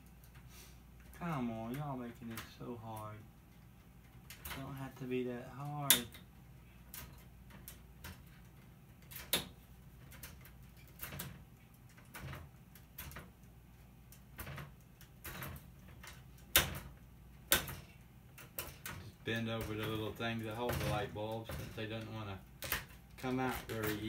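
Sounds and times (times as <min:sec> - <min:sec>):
sharp plastic snaps: 0:06.9 - 0:19.1.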